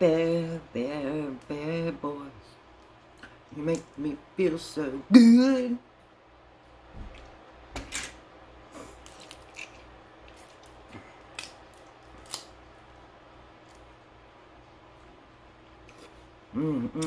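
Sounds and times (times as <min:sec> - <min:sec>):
crab shell cracking: 0:09.0 - 0:12.7.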